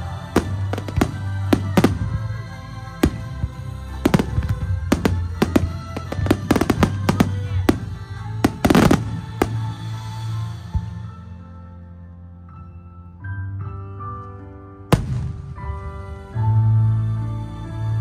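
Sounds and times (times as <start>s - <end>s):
fireworks bangs and crackles: 0.0s - 11.0s, 14.9s - 16.0s
music with held tones: 0.0s - 18.0s.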